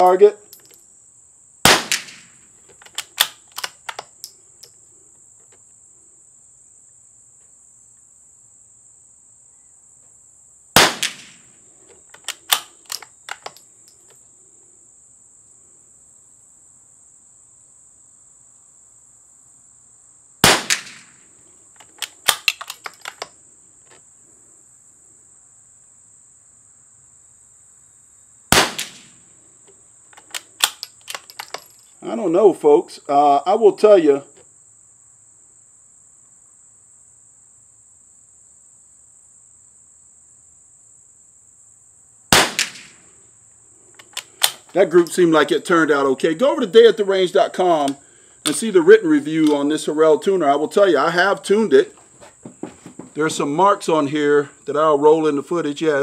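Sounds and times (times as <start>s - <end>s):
high insect buzz: 0.0s - 55.3s
rifle shots: 1.6s - 3.9s, 10.8s - 11.4s, 20.4s - 21.2s, 28.5s - 29.2s, 42.3s - 43.0s
rifle bolt metallic clicks: 2.7s - 4.7s, 12.1s - 14.2s, 21.8s - 23.3s, 30.2s - 31.8s, 44.0s - 45.2s.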